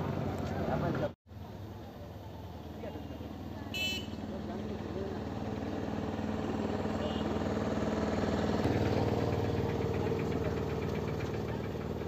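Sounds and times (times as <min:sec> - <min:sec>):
vehicle engine idling: 0:01.4 - 0:12.0.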